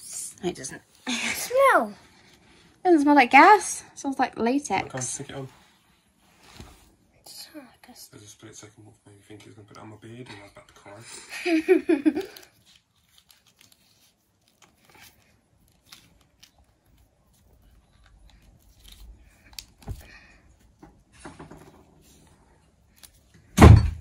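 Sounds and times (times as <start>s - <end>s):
sticky tape peeling and rustling: 12.1s - 20.1s.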